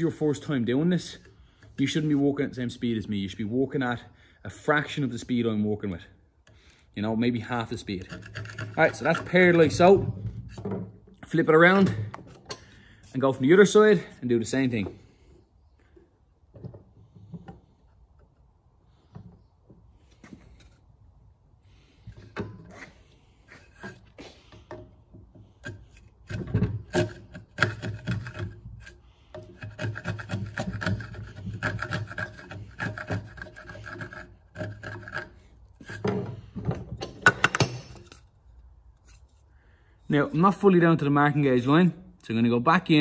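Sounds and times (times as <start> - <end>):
chisel scraping wood: 7.7 - 11.0, 22.1 - 37.3.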